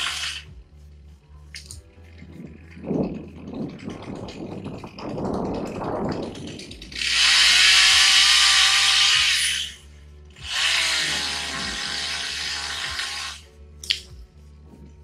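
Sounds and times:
chainsaw revving: 0:06.9 - 0:09.8, 0:10.4 - 0:13.4.

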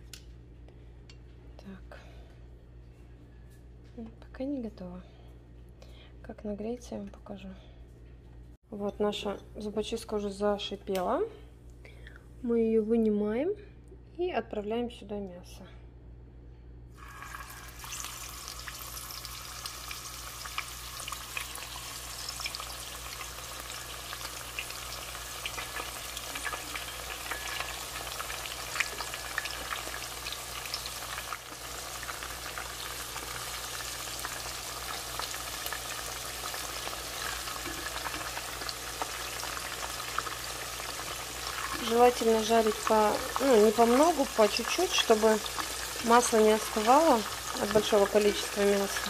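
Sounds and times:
meat sizzling in hot oil: 0:17.0 - 0:49.0.

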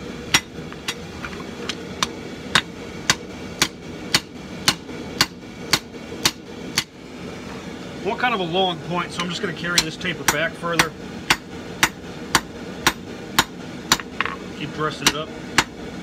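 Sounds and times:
hammer striking steel on anvil: 0:00.3 - 0:01.1, 0:01.7 - 0:06.9, 0:09.2 - 0:14.4, 0:15.0 - 0:15.8.

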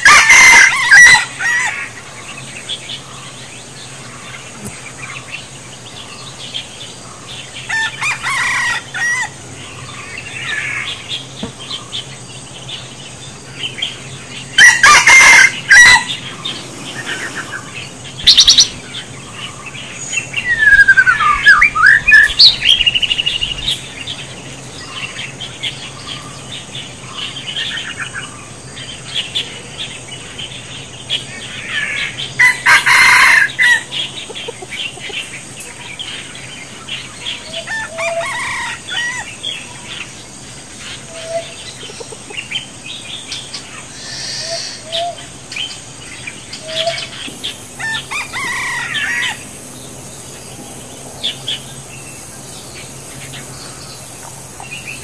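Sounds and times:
rooster crowing: 0:00.0 - 0:01.9, 0:07.7 - 0:09.4, 0:14.6 - 0:17.6, 0:32.4 - 0:34.0, 0:37.5 - 0:39.4, 0:47.8 - 0:49.4
birds chirping and calling: 0:00.0 - 0:55.0.

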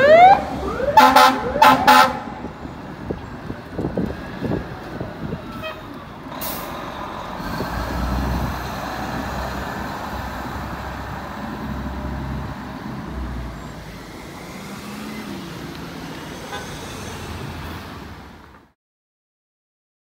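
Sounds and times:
truck diesel engine accelerating: 0:00.0 - 0:18.4.

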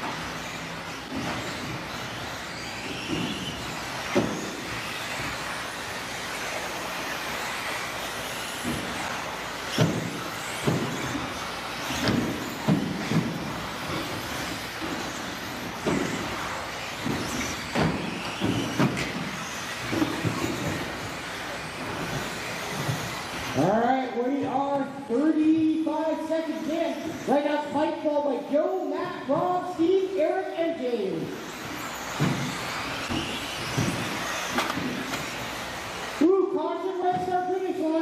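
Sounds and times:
whir of rc car motors: 0:00.0 - 0:24.6, 0:26.2 - 0:38.0
sharp knocks and clatters: 0:00.1 - 0:23.6, 0:31.5 - 0:35.6.

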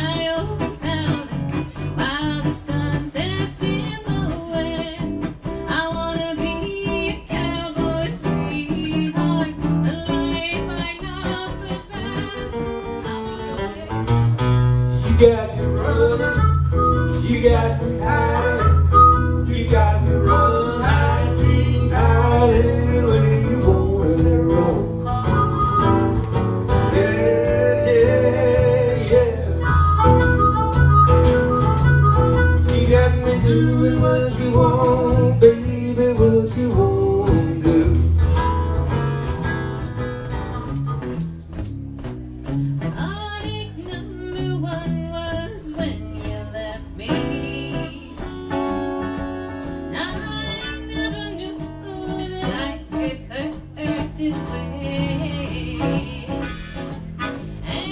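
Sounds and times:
strummed acoustic guitar: 0:00.0 - 0:57.9
harmonica playing lead lines: 0:15.8 - 0:19.5, 0:25.0 - 0:26.5, 0:29.4 - 0:33.1, 0:56.3 - 0:57.9.

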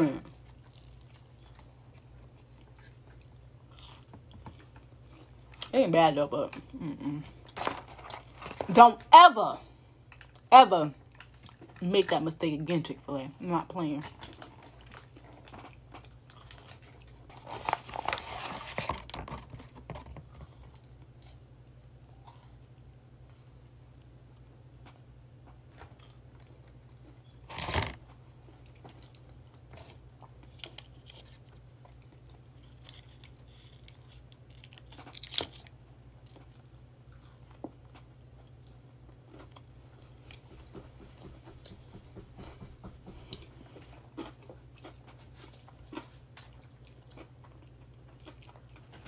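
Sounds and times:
steady low hum: 0:00.0 - 0:49.0
person chewing food: 0:00.3 - 0:05.7, 0:09.9 - 0:11.8, 0:14.1 - 0:22.9, 0:24.8 - 0:41.8, 0:43.1 - 0:49.0.

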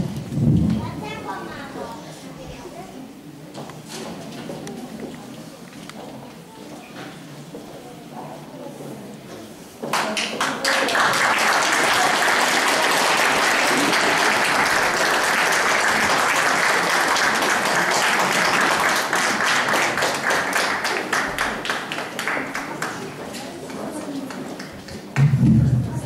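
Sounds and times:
audience applauding: 0:09.9 - 0:23.2.

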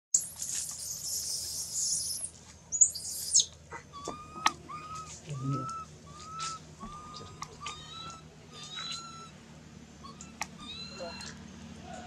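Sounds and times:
baby monkey screaming: 0:00.7 - 0:09.4, 0:10.0 - 0:11.4
baby monkey whimpering calls: 0:00.8 - 0:09.4, 0:10.0 - 0:11.4.

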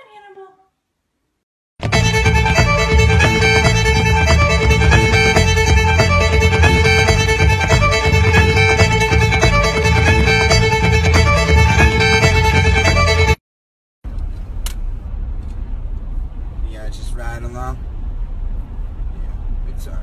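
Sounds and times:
fiddle music with low end: 0:01.8 - 0:13.4.

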